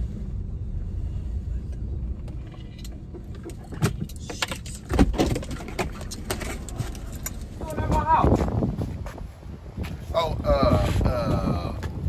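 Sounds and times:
low rumble: 0.0 - 12.0
car door shutting: 3.1 - 7.0
door and belongings rattling: 3.6 - 7.6.

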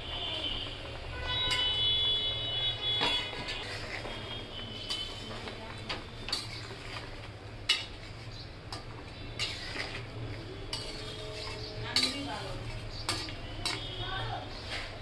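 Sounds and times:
metal spatula clinking on pan: 6.3 - 6.6, 7.6 - 8.1, 8.7 - 10.0, 10.7 - 13.9.

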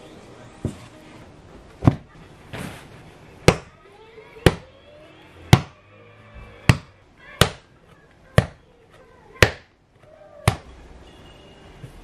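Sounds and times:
dough thumping on wooden board: 1.8 - 2.1, 3.4 - 3.8, 4.4 - 4.7, 5.5 - 5.8, 6.6 - 7.7, 8.3 - 8.6, 9.4 - 9.7, 10.4 - 10.7.

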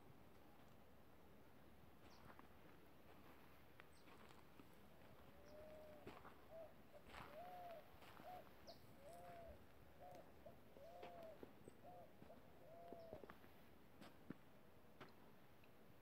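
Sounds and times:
dove cooing: 5.1 - 13.4.

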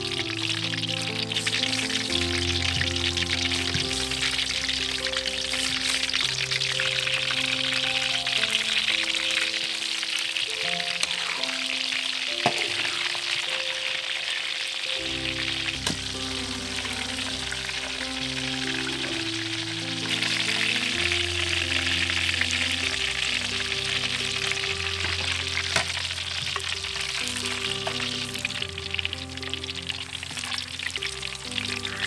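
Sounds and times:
background music with bass: 0.0 - 8.4, 15.1 - 32.0
oil sizzling in a wok: 0.0 - 32.0.

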